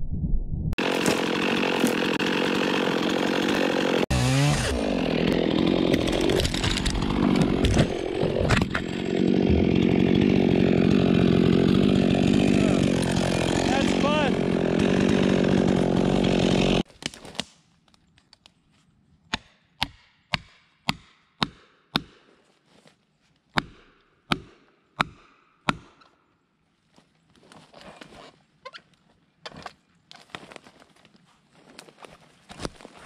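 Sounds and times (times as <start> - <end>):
chainsaw running: 0.8 - 16.9.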